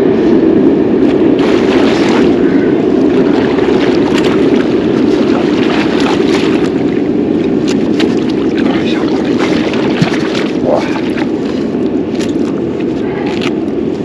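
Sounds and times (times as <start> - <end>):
rushing water and wind: 0.0 - 14.0
short splashes: 1.4 - 2.4, 3.1 - 7.0, 7.6 - 11.6.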